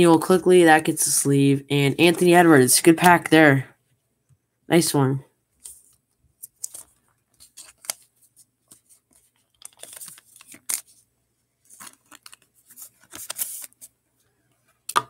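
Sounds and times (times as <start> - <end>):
cards swishing and scraping: 5.6 - 11.0, 11.6 - 14.0.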